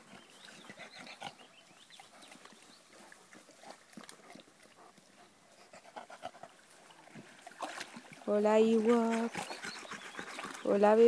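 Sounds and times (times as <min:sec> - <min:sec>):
water splashing: 0:01.9 - 0:05.2, 0:05.8 - 0:11.0
dogs breathing: 0:03.3 - 0:06.8, 0:08.9 - 0:11.0.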